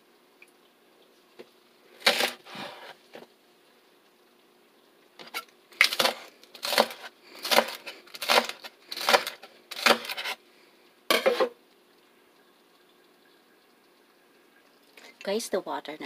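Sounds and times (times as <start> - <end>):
knife chopping on wooden board: 5.8 - 10.2.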